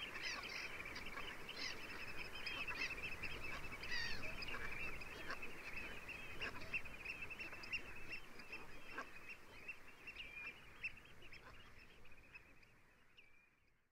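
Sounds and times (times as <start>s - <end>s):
flock of birds calling: 0.0s - 12.5s.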